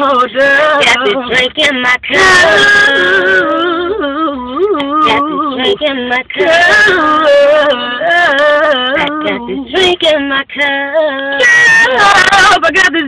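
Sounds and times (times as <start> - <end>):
women singing long notes: 0.0 - 13.0.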